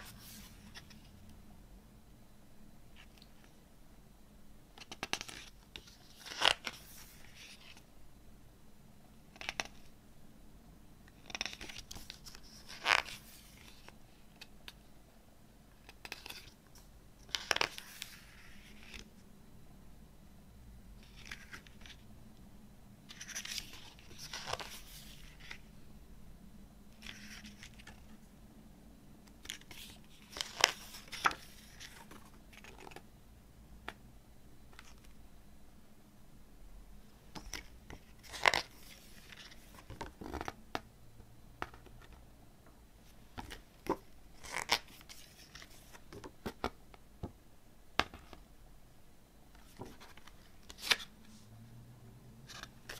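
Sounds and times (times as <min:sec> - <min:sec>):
booklet pages turning: 0:00.0 - 0:01.1, 0:04.8 - 0:07.8, 0:11.2 - 0:14.8, 0:15.8 - 0:16.6, 0:17.2 - 0:19.1, 0:21.0 - 0:22.0, 0:23.1 - 0:25.7, 0:27.0 - 0:28.2, 0:29.3 - 0:33.0, 0:37.4 - 0:40.8, 0:43.4 - 0:46.8, 0:49.6 - 0:51.2, 0:52.5 - 0:52.9.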